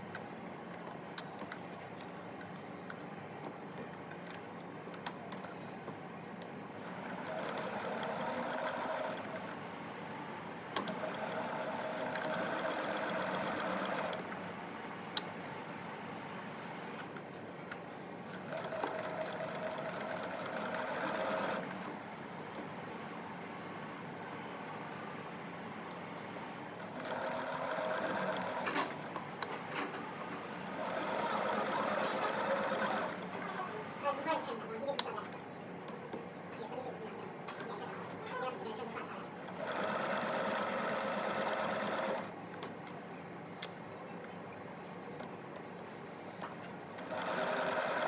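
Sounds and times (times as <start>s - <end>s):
sewing machine stitching: 6.8s - 9.6s, 10.8s - 14.5s, 18.3s - 21.9s, 26.8s - 29.1s, 30.6s - 33.6s, 39.5s - 42.3s, 47.0s - 48.0s.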